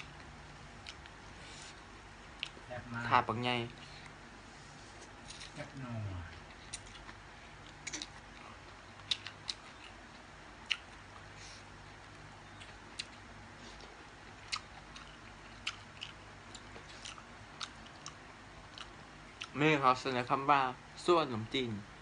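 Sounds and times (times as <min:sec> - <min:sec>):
faint steady hum: 0:00.0 - 0:22.0
wet chewing clicks and smacks: 0:00.1 - 0:01.2, 0:02.4 - 0:02.6, 0:06.4 - 0:11.3, 0:12.0 - 0:19.6.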